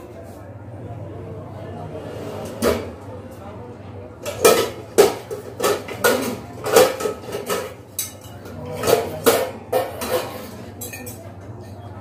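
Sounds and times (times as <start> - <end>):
steel kitchen vessels clanking: 4.2 - 12.0.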